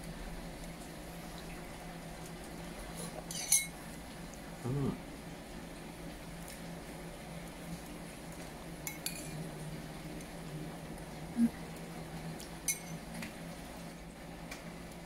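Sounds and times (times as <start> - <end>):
steady low hum: 0.0 - 15.0
spoon clinking on ceramic bowl: 3.3 - 3.8, 12.7 - 13.0
mouth sound eating: 4.6 - 5.0.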